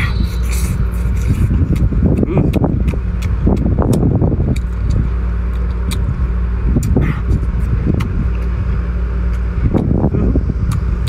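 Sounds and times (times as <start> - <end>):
low engine drone: 0.0 - 11.0.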